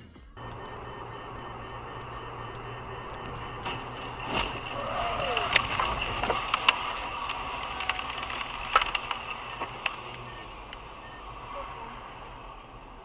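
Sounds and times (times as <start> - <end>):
road noise at highway speed: 0.0 - 13.0
flying debris clacking and knocking: 3.1 - 10.8.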